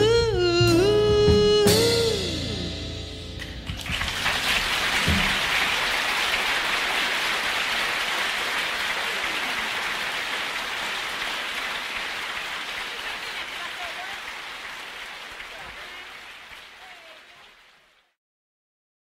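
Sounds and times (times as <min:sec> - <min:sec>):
band low note: 0:00.0 - 0:03.8
audience applauding: 0:03.7 - 0:18.1.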